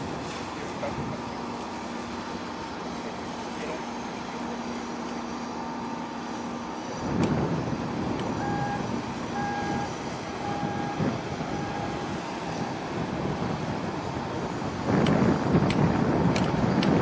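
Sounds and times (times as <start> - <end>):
low outdoor rumble: 0.0 - 17.0
warning beeper: 8.4 - 12.1.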